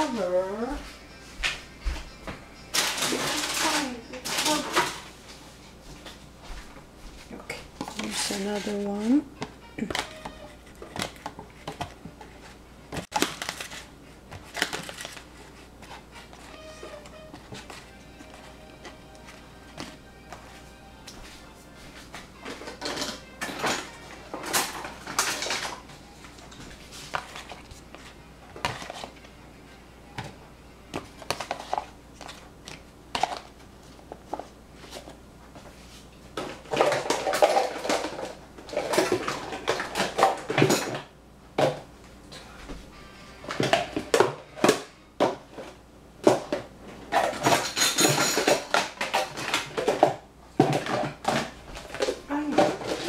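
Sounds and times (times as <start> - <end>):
dishes and cutlery clattering: 2.7 - 5.1, 22.4 - 25.8, 36.4 - 41.1, 46.3 - 53.0.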